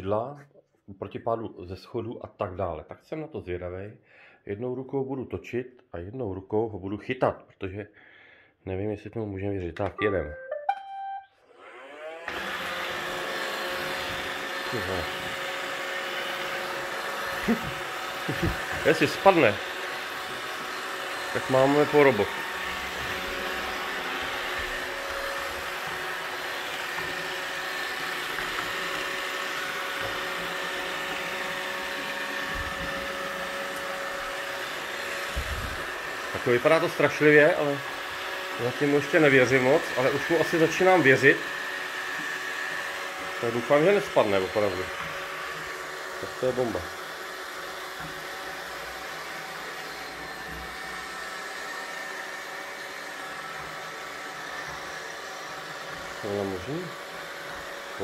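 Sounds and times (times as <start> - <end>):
faint thin high tone: 9.9 - 11.4
robot vacuum whirring: 11.5 - 58.0.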